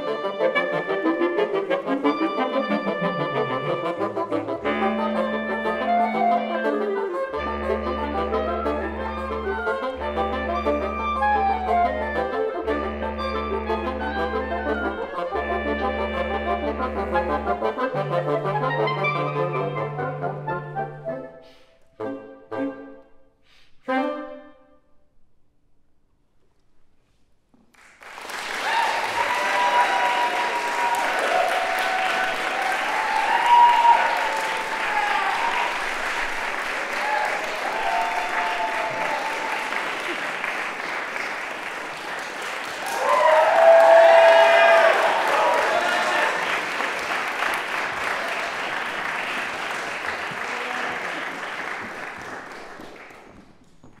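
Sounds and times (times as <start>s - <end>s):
audience applause: 27.8s - 53.6s
audience cheering: 28.1s - 52.4s.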